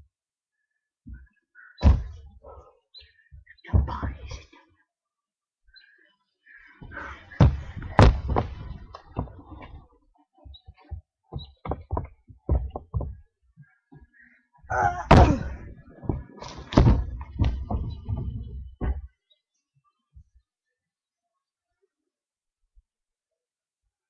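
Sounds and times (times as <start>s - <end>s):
thuds and knocks on boat deck: 1.8s - 2.3s, 10.9s - 13.2s, 14.9s - 19.1s.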